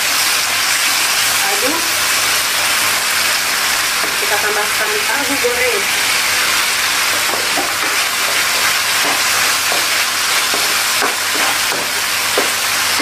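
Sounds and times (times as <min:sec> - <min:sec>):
food sizzling in a wok: 0:00.0 - 0:13.0
spatula scraping a pan: 0:07.0 - 0:12.6.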